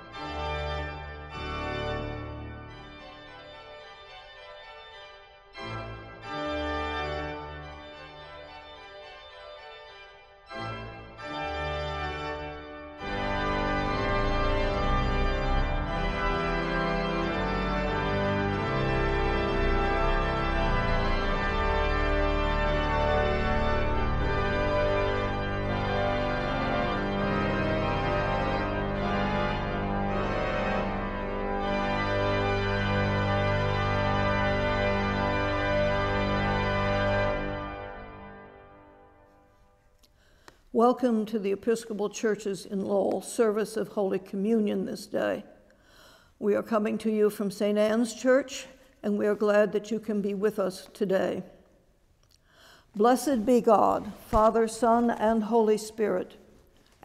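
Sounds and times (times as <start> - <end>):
organ chords: 0.0 - 39.6.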